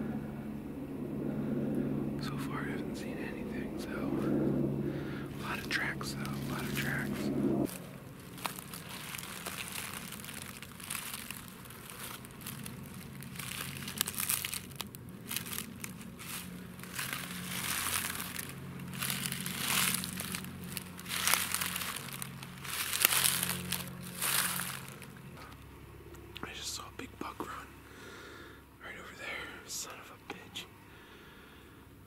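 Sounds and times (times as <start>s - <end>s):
footsteps crunching dry leaves: 5.4s - 25.6s.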